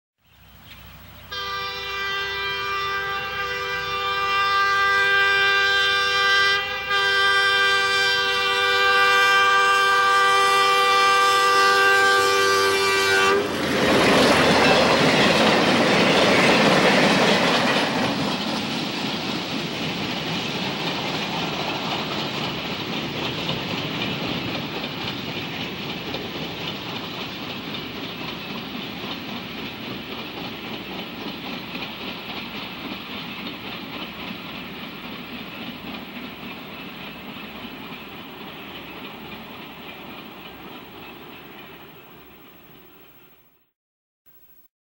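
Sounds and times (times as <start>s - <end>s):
freight train rolling past: 0.4s - 43.6s
locomotive air horn blowing: 1.3s - 13.5s.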